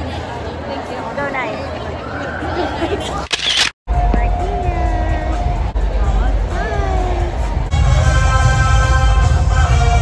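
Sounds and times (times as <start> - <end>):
music with heavy bass beat: 3.9 - 8.5.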